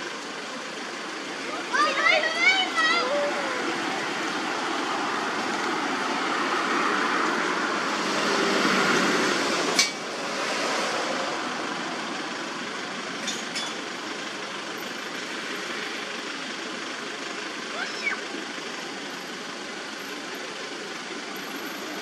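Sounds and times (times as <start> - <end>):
outdoor rushing noise: 0.0 - 13.2.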